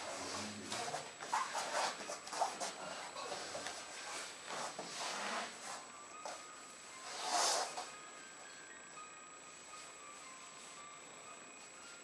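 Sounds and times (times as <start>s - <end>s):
clothing rustling on floor mat: 0.0s - 7.9s.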